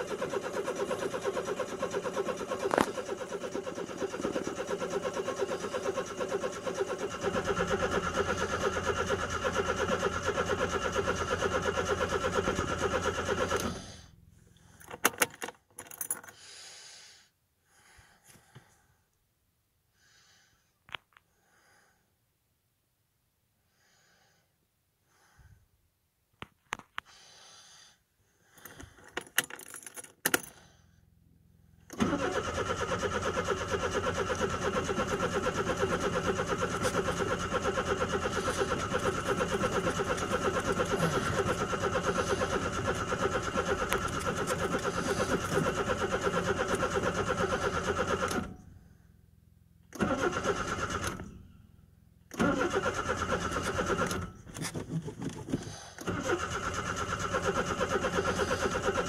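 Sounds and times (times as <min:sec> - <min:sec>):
engine cranking on starter: 0:00.0 - 0:16.4, 0:31.8 - 0:48.8, 0:49.8 - 0:51.5, 0:52.3 - 0:59.0
starter clicks: 0:00.2 - 0:04.7, 0:31.9 - 0:48.5.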